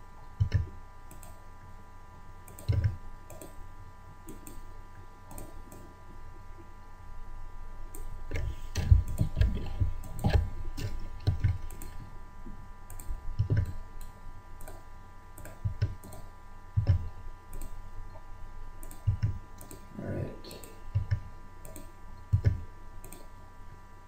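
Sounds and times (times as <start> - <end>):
faint electrical whine: 0.0 - 24.0
computer mouse clicking: 0.4 - 1.4, 2.4 - 3.6, 4.2 - 4.7, 5.3 - 5.9, 7.9 - 12.0, 12.9 - 17.8, 18.8 - 19.9, 20.5 - 23.3.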